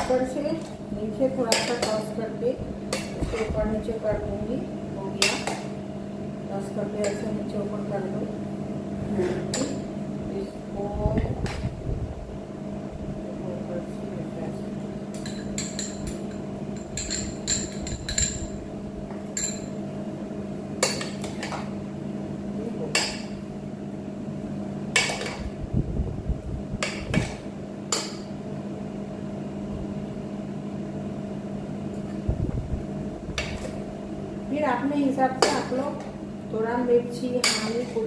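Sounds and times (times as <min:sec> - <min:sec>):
spoon clinking against pot: 0:15.1 - 0:18.5.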